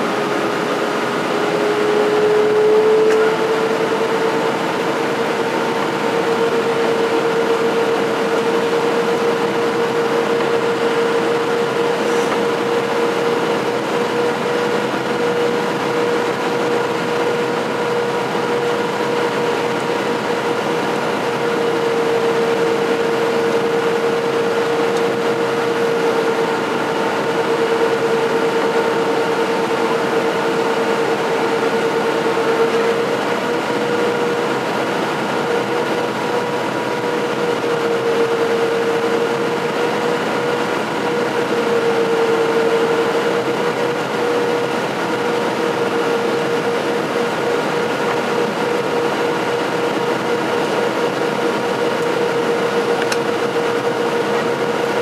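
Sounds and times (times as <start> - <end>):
airflow rush in cabin: 0.0 - 55.0
jet engine drone: 0.0 - 55.0.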